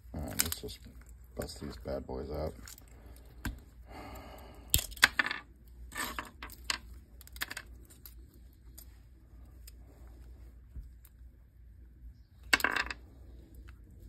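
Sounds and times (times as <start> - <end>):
dice clacking onto tabletop: 4.8 - 5.4, 12.5 - 13.0.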